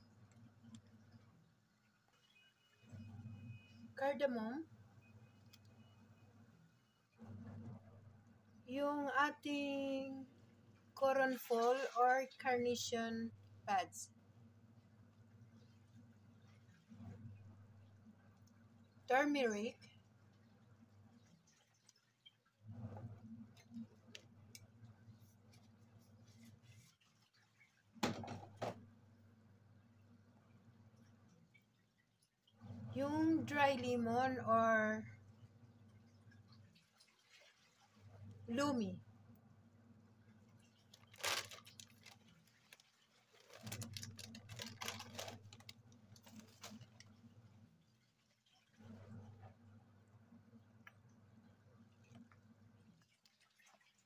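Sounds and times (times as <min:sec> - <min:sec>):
low steady hum: 0:00.0 - 0:54.0
broth bubbling in a pot: 0:35.0 - 0:41.1.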